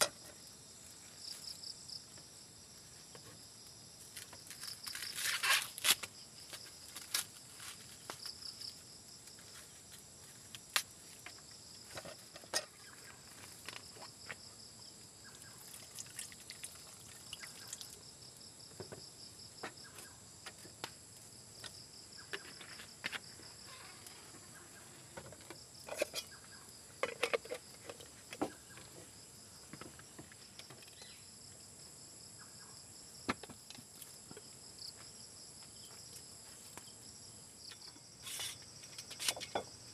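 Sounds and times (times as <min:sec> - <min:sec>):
crickets trilling: 0:00.0 - 0:39.9
corn husks rustling: 0:04.1 - 0:08.8.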